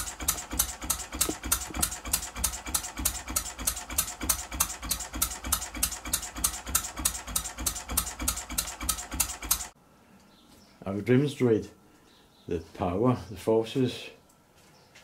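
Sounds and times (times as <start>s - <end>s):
small diesel engine running: 0.0s - 9.8s.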